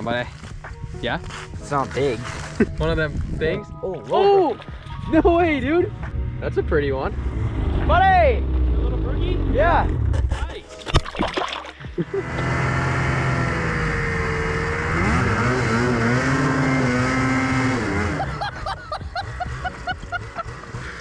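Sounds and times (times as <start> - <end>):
snowmobile engine revving: 6.5 - 10.5, 12.0 - 21.0.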